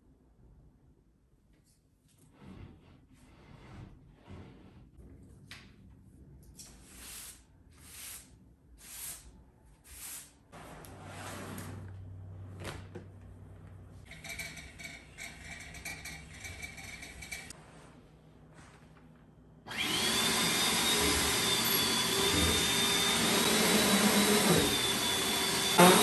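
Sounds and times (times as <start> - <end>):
vacuum cleaner high whine: 19.7 - 26.0
vacuum cleaner motor hum: 19.7 - 26.0.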